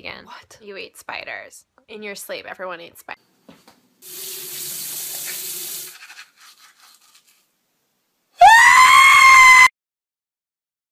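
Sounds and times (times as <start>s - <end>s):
toothbrush scrubbing teeth: 4.9s - 7.5s
man screaming high-pitched: 8.4s - 9.7s.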